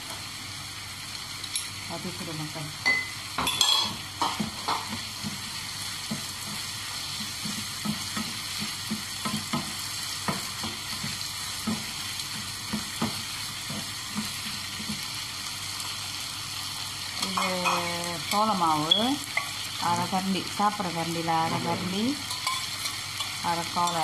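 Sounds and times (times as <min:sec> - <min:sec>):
food sizzling in a frying pan: 0:00.0 - 0:24.0
spatula knocking on pan: 0:07.3 - 0:12.0, 0:12.6 - 0:15.0
spatula scraping a pan: 0:21.5 - 0:24.0.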